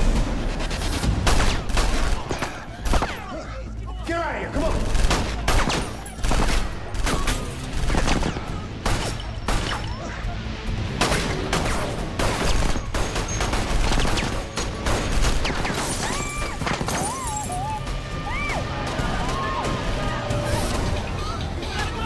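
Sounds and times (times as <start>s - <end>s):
gunfire bursts: 0.0s - 3.3s, 4.7s - 10.0s, 11.0s - 17.1s
background music: 0.0s - 22.0s.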